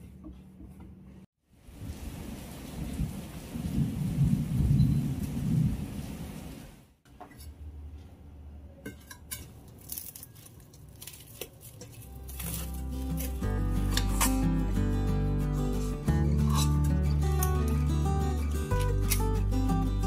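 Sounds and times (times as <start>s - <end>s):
steady rain: 1.5s - 7.0s
thunder rumble: 1.6s - 6.9s
cling film crinkling: 9.7s - 14.7s.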